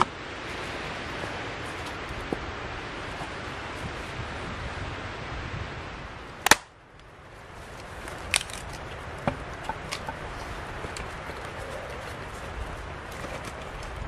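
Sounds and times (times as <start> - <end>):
outdoor noise haze: 0.0 - 14.0
sharp crack: 6.4 - 7.1, 7.8 - 10.2.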